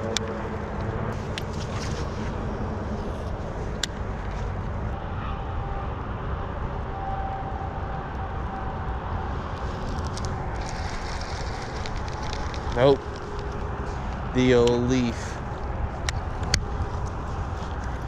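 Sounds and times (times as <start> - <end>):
low rumbling background noise: 0.0 - 18.0.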